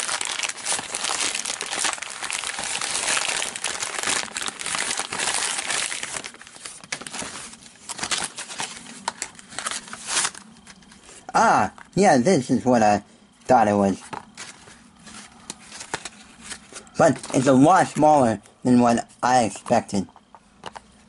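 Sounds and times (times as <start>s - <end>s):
plastic bag crinkling and tearing: 0.0s - 10.4s.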